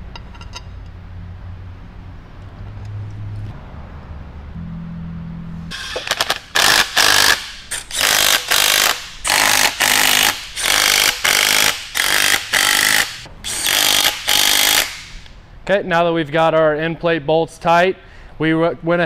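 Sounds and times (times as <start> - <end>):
impact driver bursts: 5.7 - 15.4.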